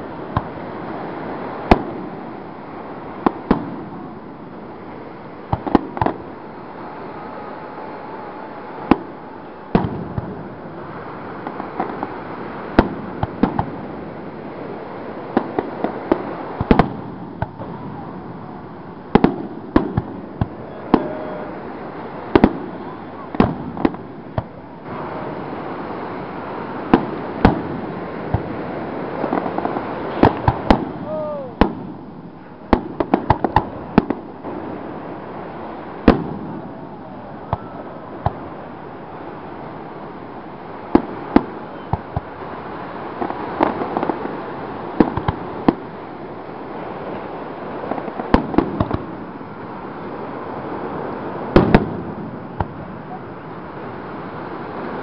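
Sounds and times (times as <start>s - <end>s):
steady background hiss: 0.0s - 55.0s
firework shells bursting: 5.4s - 6.4s, 11.3s - 14.1s, 26.6s - 34.7s, 36.0s - 36.8s, 43.1s - 46.0s, 47.2s - 49.4s, 51.4s - 53.0s.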